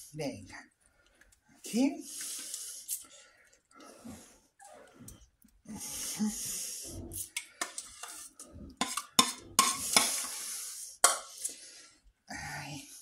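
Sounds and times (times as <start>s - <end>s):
spoon scraping thick sauce: 7.2s - 11.4s.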